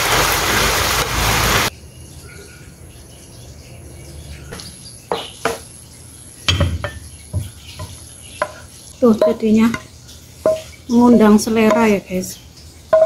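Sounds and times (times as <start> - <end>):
food sizzling in wok: 0.0 - 1.7, 7.5 - 12.3
faint chirping: 1.7 - 13.0
utensil knocking on pan: 6.5 - 12.0.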